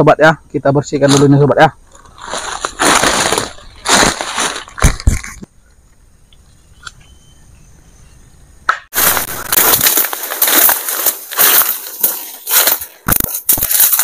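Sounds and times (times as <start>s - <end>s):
leaves and twigs crunching: 1.0s - 5.5s, 8.9s - 14.0s.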